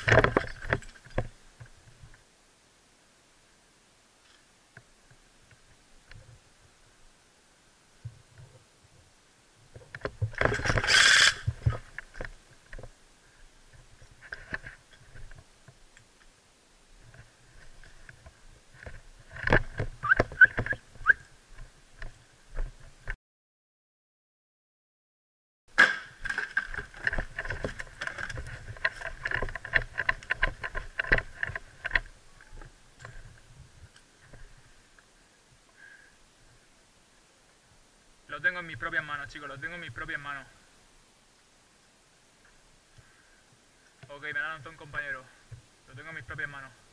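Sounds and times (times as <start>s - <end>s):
gear rattling: 0.0s - 1.3s, 10.2s - 12.3s, 26.2s - 32.1s.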